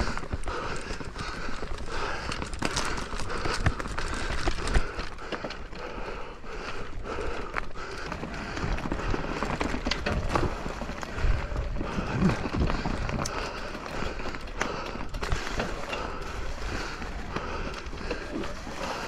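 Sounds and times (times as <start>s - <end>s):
mountain bike on rough trail: 0.0s - 19.0s
bike knocks and rattles: 8.0s - 19.0s.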